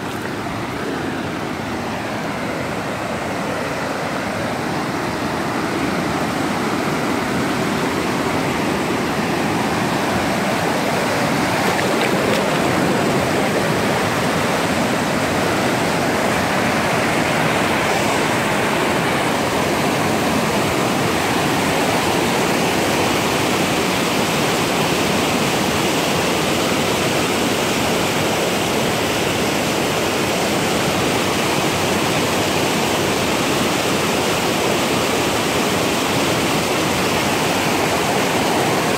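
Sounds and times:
water rushing over rocks: 0:00.0 - 0:38.9.

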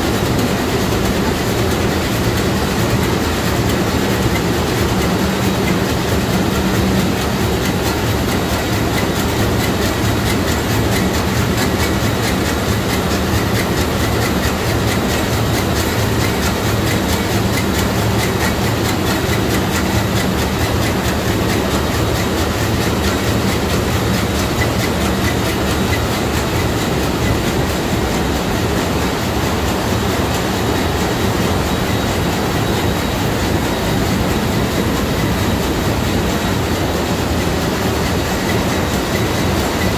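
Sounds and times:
ship diesel engine clatter: 0:00.0 - 0:39.9.

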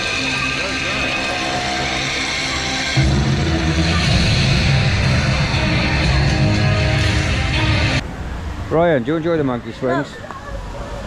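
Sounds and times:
loud rock music with guitar: 0:00.0 - 0:08.0.

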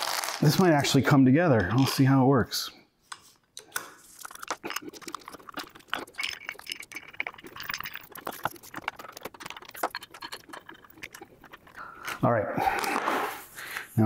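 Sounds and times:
small metallic clicks and clinks: 0:03.6 - 0:12.2.

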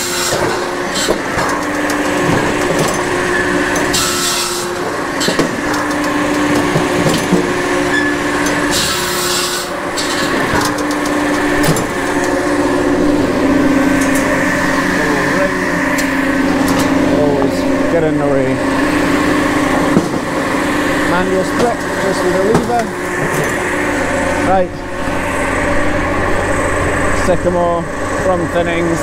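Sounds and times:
circular saw rasping through logs: 0:00.0 - 0:16.6
firewood processor droning: 0:00.0 - 0:29.0.

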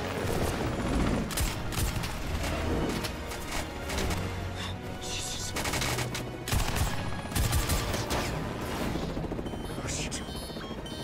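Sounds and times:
rapid automatic gunfire: 0:05.5 - 0:08.2.

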